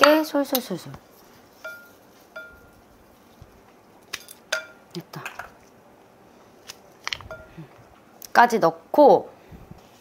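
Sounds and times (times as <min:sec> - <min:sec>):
glass bowl clinking: 0:01.6 - 0:02.8, 0:04.2 - 0:05.6, 0:07.3 - 0:07.6.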